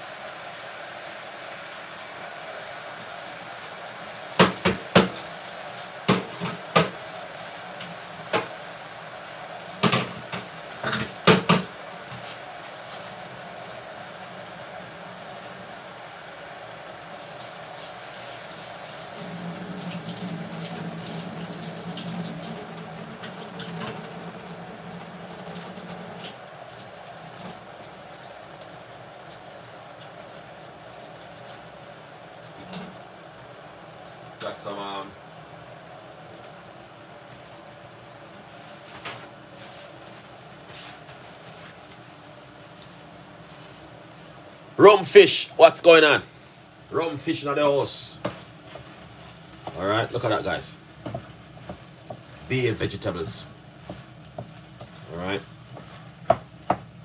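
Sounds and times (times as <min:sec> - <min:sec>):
vegetables sizzling in a pot: 0:00.0 - 0:57.0
tap water running into sink: 0:17.4 - 0:27.6.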